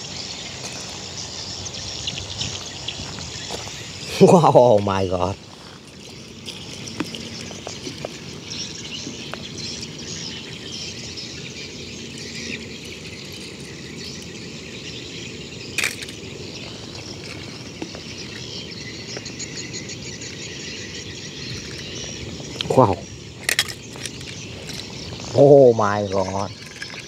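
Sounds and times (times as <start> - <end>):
high hiss of insects: 0.0 - 27.0
metal toy cars clicking on stones: 15.7 - 18.5, 23.4 - 25.4, 26.4 - 27.0.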